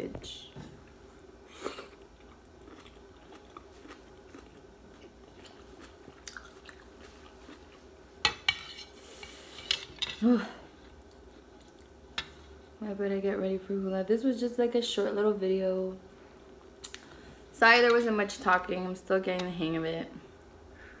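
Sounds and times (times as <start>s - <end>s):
quiet chewing: 0.8s - 7.9s, 10.7s - 12.7s.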